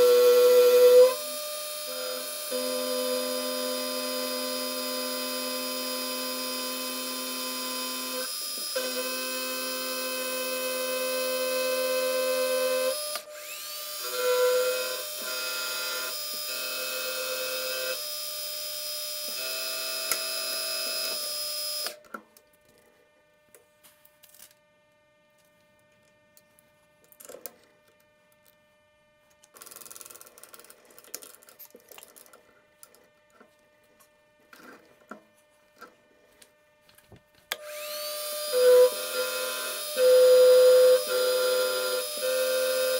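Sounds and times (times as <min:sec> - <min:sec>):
milling machine whine: 0:00.0 - 0:18.0, 0:37.6 - 0:42.9.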